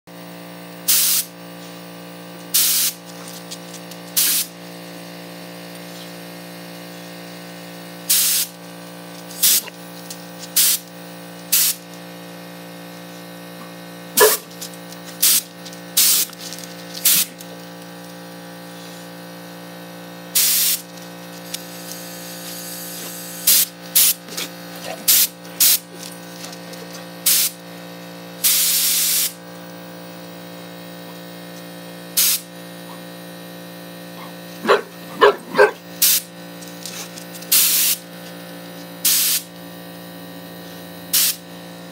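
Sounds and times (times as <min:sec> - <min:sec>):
steady low hum: 0:00.5 - 0:41.9
compressed air hissing: 0:00.9 - 0:01.3, 0:02.5 - 0:03.0, 0:04.2 - 0:04.5, 0:08.1 - 0:08.6, 0:09.3 - 0:09.7, 0:10.6 - 0:10.8, 0:11.5 - 0:11.8, 0:15.2 - 0:16.3, 0:17.0 - 0:17.4, 0:20.4 - 0:20.8, 0:21.6 - 0:24.5, 0:27.2 - 0:27.6, 0:28.4 - 0:29.4, 0:32.2 - 0:32.5, 0:36.0 - 0:36.3, 0:37.0 - 0:38.0, 0:39.0 - 0:39.5, 0:41.1 - 0:41.4.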